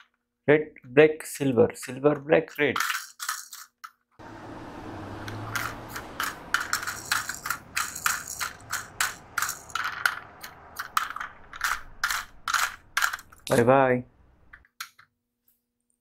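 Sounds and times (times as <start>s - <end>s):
toy truck plastic clicks and scrapes: 1.8s - 4.1s, 5.3s - 13.7s.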